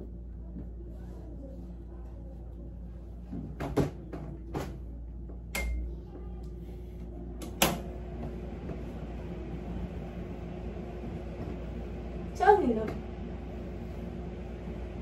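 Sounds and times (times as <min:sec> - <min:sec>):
air conditioner humming: 0:00.0 - 0:15.0
air conditioner beep: 0:05.5 - 0:05.9.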